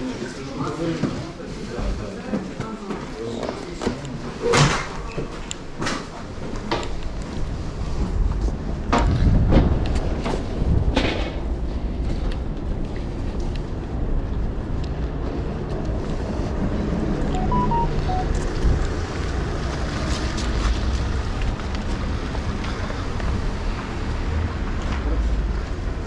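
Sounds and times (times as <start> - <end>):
wind buffeting microphone: 7.5 - 15.2
short beeps: 17.4 - 18.4.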